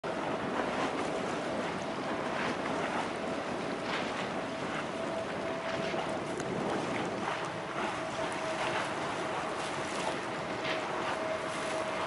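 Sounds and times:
wind on microphone: 0.0 - 12.0
distant jet engines rumbling: 0.1 - 12.0.

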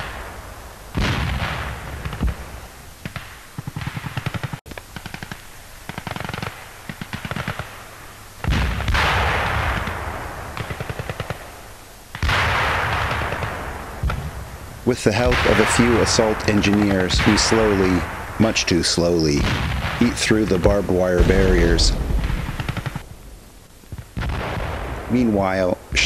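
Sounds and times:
heavy explosion blasts: 0.0 - 2.8, 8.4 - 11.5, 12.2 - 26.0
rapid machine-gun fire: 0.9 - 7.8, 8.4 - 14.3, 15.2 - 23.1.

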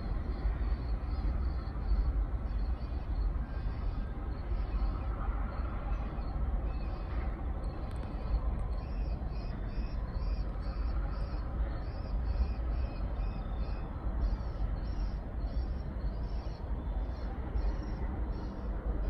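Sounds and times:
low steady rumble: 0.0 - 19.0
night insects chirping: 8.3 - 18.8.

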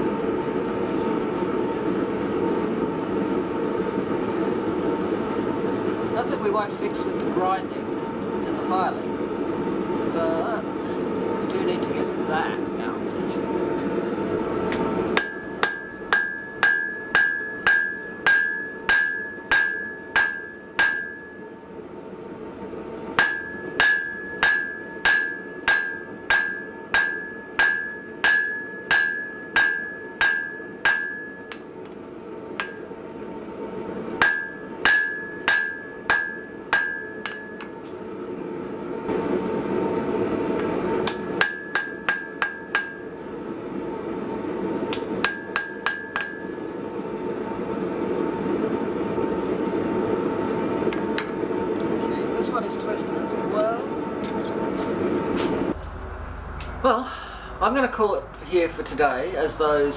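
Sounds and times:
hammer ringing on anvil: 14.7 - 21.5, 23.2 - 31.7, 32.6 - 32.9, 34.2 - 37.8, 41.0 - 43.1, 44.9 - 46.6.

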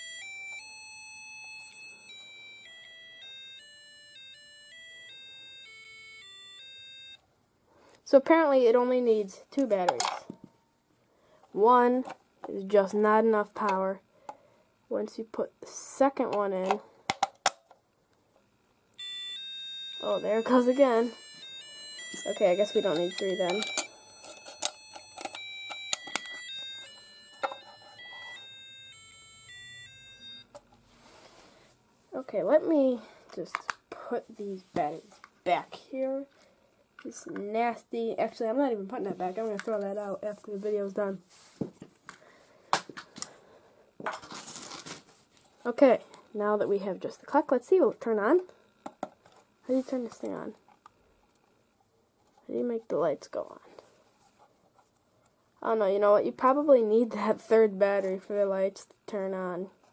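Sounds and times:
beeping electronic melody: 0.0 - 7.2, 19.0 - 30.5.

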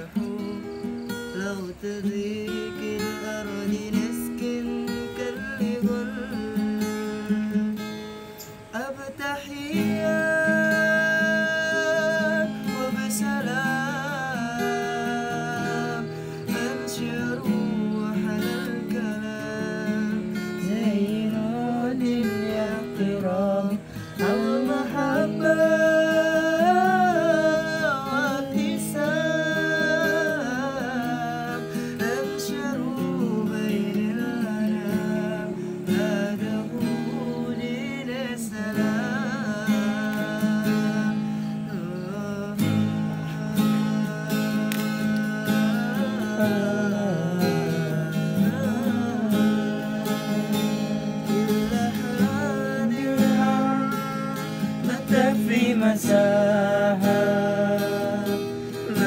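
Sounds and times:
acoustic guitar strumming: 0.0 - 59.0
person singing: 8.6 - 59.0.

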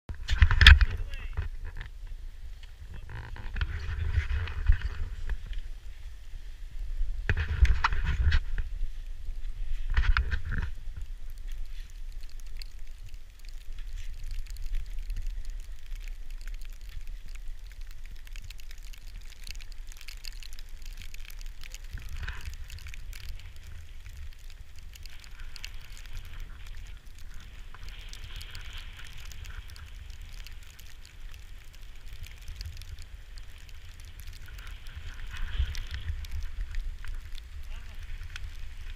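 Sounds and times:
wind rumbling on microphone: 0.1 - 38.9
skis scraping over snow: 3.7 - 17.9, 19.8 - 38.9.

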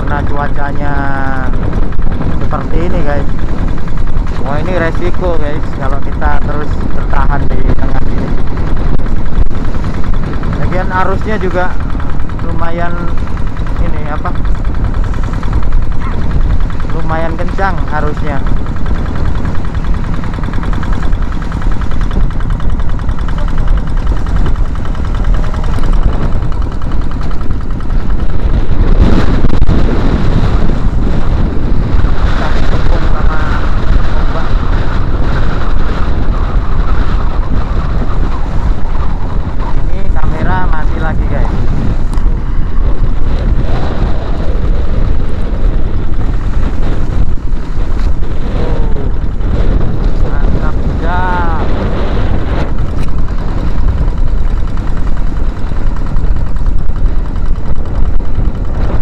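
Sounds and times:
diesel boat engine chugging: 0.0 - 59.0
rushing wind: 0.0 - 59.0.

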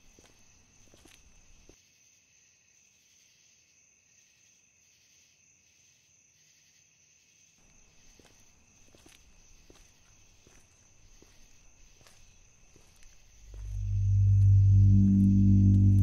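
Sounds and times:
soft footsteps: 0.0 - 1.8, 7.6 - 16.0
cricket trill: 0.0 - 16.0
soft chirps: 13.4 - 16.0.

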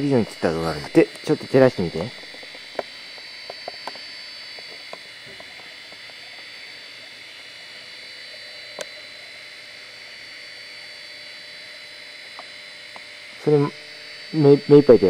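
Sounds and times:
insects calling: 0.0 - 15.0
small clicks: 8.7 - 9.0.

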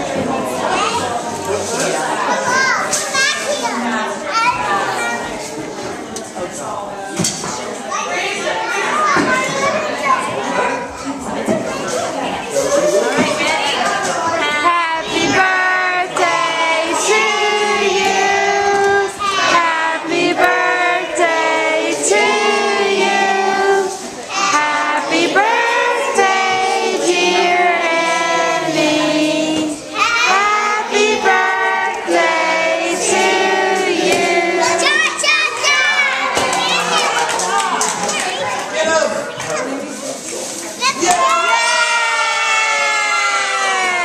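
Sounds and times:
children singing together: 14.2 - 37.1.

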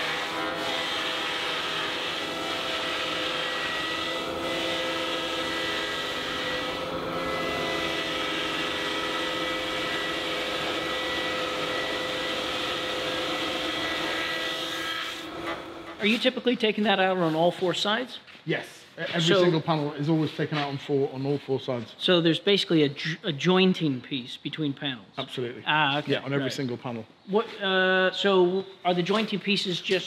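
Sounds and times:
router cutter whine: 0.0 - 16.0.

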